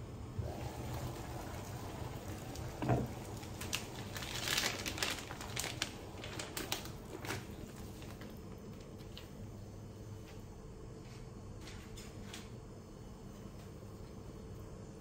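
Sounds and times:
plastic pouch crinkling: 3.1 - 9.3.

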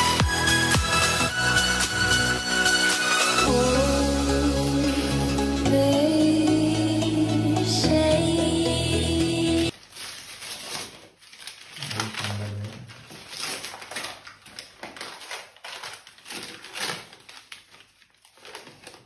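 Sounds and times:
wrapping paper rustling: 4.7 - 5.4, 9.7 - 19.0.

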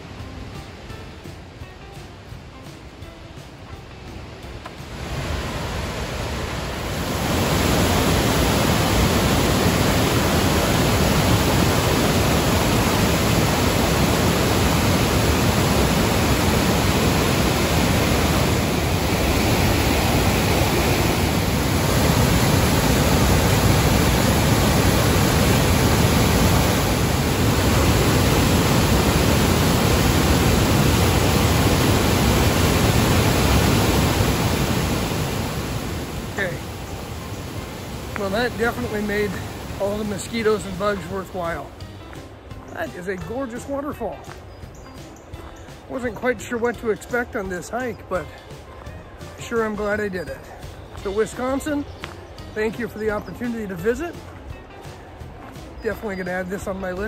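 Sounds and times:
waterfall roaring: 3.6 - 41.8.

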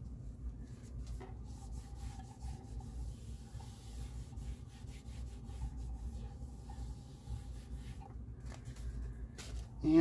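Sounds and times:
pad rubbing on turntable platter: 1.2 - 8.1.

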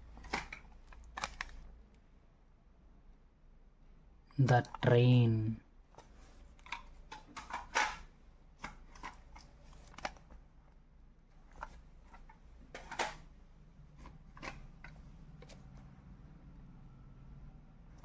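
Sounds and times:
plastic cassette cases clicking: 0.2 - 1.7, 6.0 - 10.4, 11.5 - 13.3, 14.0 - 15.6.

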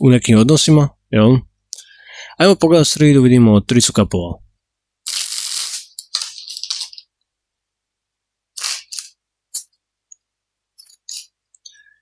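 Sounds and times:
cards rustling and sliding: 5.7 - 7.0.

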